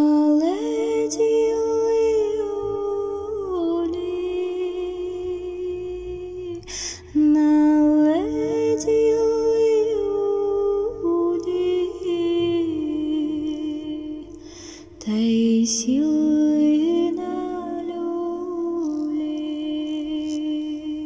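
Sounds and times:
breath: 6.6 - 7.2, 14.3 - 15.0.

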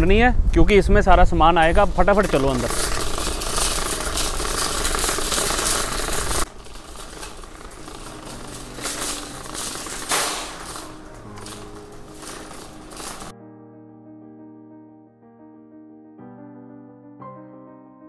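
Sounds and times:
shopping cart rattling on asphalt: 1.4 - 13.3.

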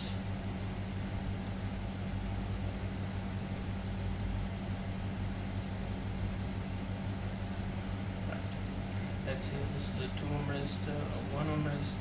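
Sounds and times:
constant hiss: 6.2 - 12.0.

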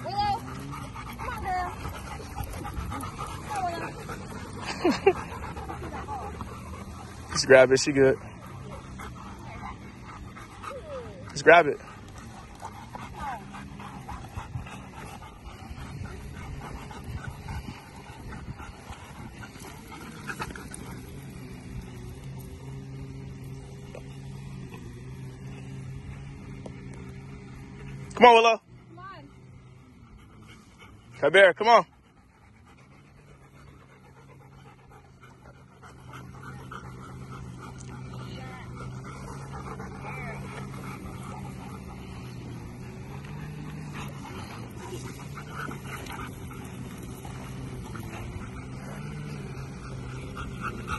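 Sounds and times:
dogs panting: 0.0 - 50.9
low steady hum: 31.8 - 50.9.

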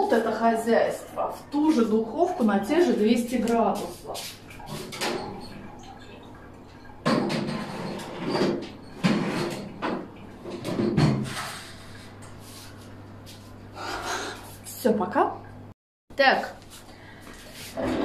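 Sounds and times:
oven door opening and shutting: 7.1 - 11.6.

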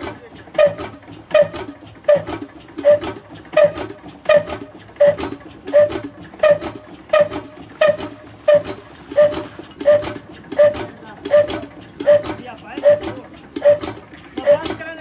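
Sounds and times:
metallic clack of engine flywheels: 0.0 - 15.0.

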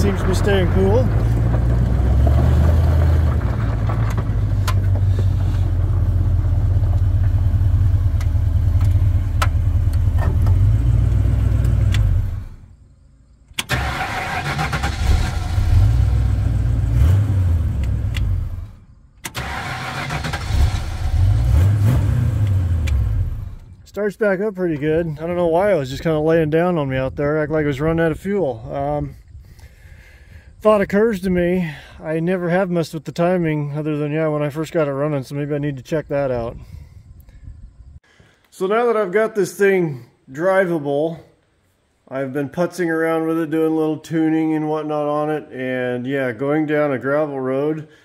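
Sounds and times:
car engine idling: 0.0 - 12.7
engine restarting with key: 13.6 - 16.2, 19.2 - 23.7.

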